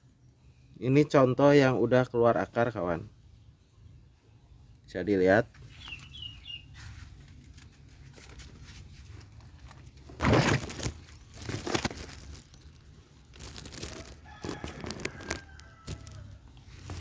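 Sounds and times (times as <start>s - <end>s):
leaves and branches rustling: 5.5s - 17.0s.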